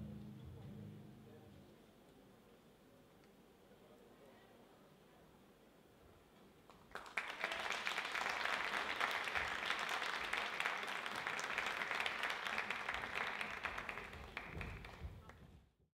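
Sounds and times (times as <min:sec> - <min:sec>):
audience applause: 0:06.7 - 0:15.4.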